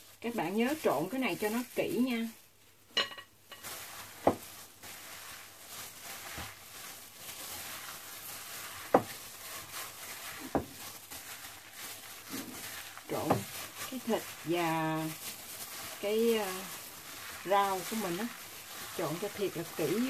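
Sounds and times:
plastic gloves rustling: 0.0s - 20.0s
meat squishing: 3.6s - 20.0s
hands smacking meat: 4.2s - 4.5s, 8.4s - 11.6s.

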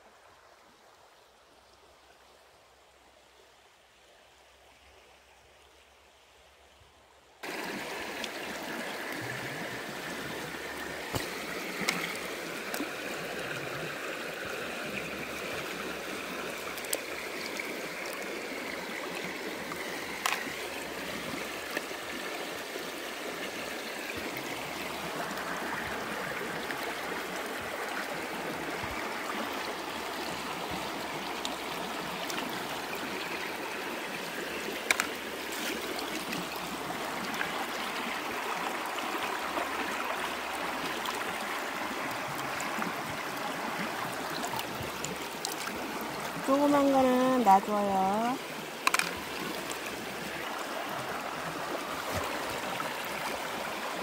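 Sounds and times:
stream trickling over rocks: 0.0s - 54.0s.

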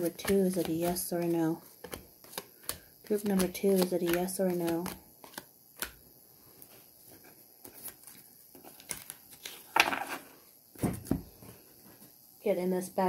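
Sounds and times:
card rustle: 0.0s - 6.0s
tarot cards being shuffled: 0.0s - 6.0s, 7.6s - 10.3s.

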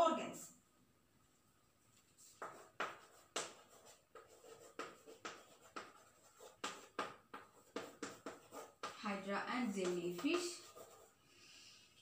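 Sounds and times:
chalk scratching on blackboard: 2.1s - 11.2s.

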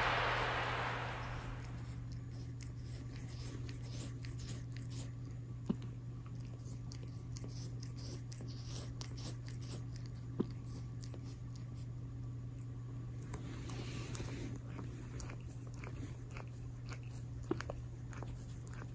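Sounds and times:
steady low hum: 0.0s - 3.3s
cat tongue licking: 1.8s - 11.9s, 13.2s - 18.9s.

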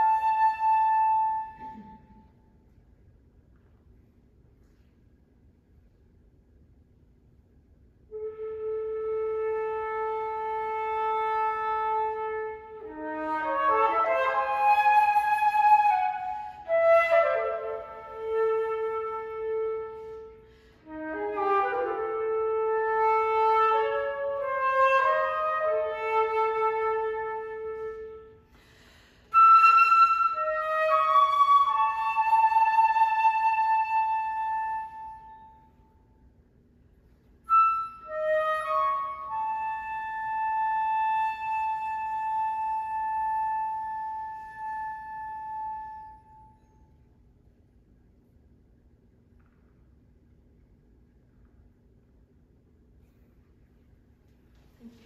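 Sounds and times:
solo flute melody: 0.0s - 2.9s, 8.0s - 28.6s, 29.2s - 36.4s, 37.0s - 47.4s.

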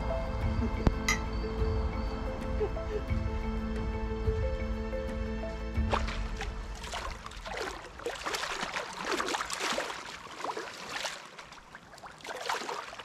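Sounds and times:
small waves lapping: 5.8s - 13.0s.

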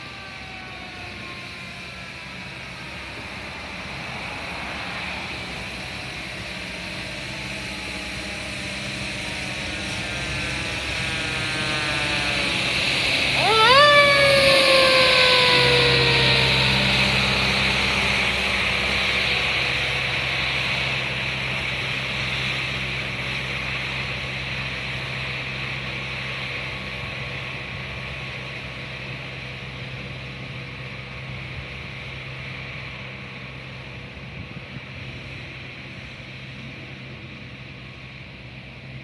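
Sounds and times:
street sweeper engine hum: 0.0s - 26.4s.

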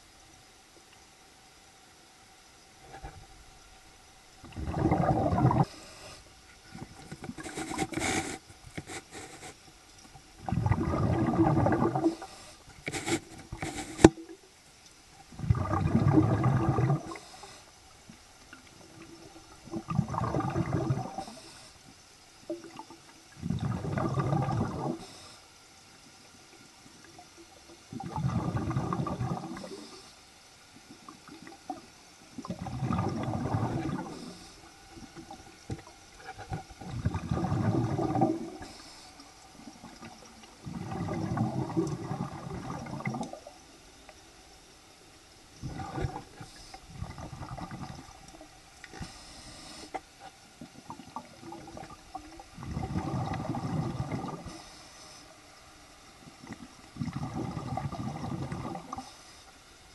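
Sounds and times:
faint hisses: 0.0s - 10.6s, 11.2s - 15.4s, 16.3s - 19.9s, 20.5s - 23.7s, 24.5s - 59.9s
air bubbling underwater: 4.4s - 5.7s, 10.4s - 12.2s, 15.3s - 17.2s, 19.7s - 21.2s, 23.4s - 25.0s, 27.9s - 29.7s, 32.4s - 34.4s, 36.8s - 38.6s, 40.6s - 43.5s, 45.6s - 48.1s, 50.9s - 54.5s, 56.4s - 59.0s.

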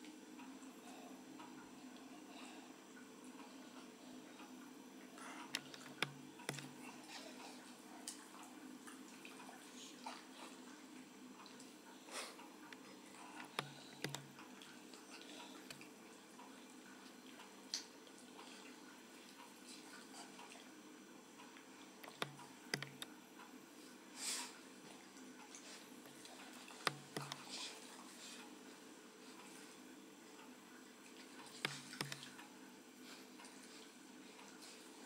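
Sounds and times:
sharp clicks: 13.5s - 14.4s, 22.0s - 23.1s, 31.6s - 32.4s.

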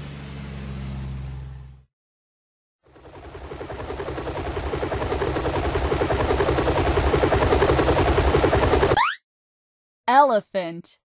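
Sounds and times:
helicopter rotor beating: 2.8s - 9.2s.

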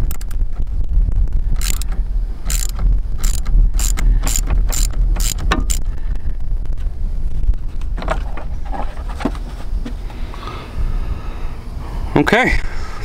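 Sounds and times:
ratchet clicking: 1.6s - 5.9s.

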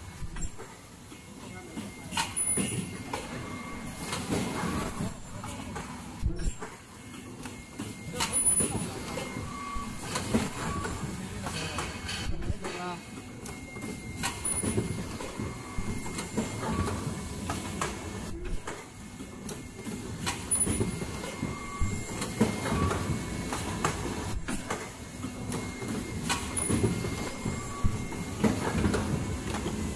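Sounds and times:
mask production machine clattering: 13.8s - 29.9s
loud machine bursts: 15.9s - 16.7s, 18.3s - 18.8s, 21.6s - 22.3s.

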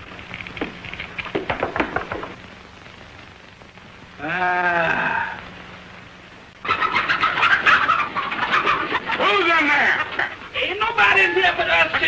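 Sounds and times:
drawn-out vocal cry: 4.2s - 5.5s.

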